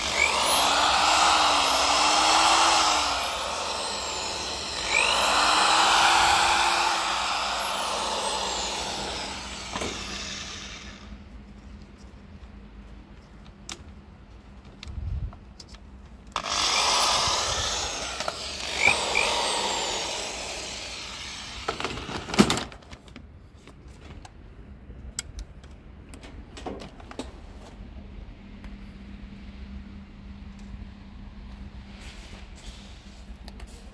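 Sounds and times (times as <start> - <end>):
power tool whirring: 0.0 - 11.2, 16.4 - 22.6.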